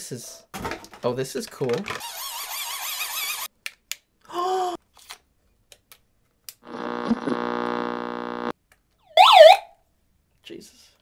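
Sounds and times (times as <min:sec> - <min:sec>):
electronic buzz from speaker: 0:06.6 - 0:08.5.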